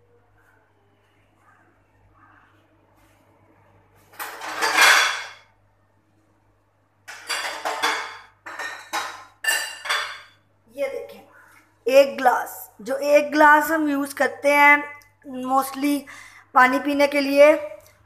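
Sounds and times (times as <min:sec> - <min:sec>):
dishes and utensils clattering: 0:04.1 - 0:05.5, 0:07.0 - 0:10.4.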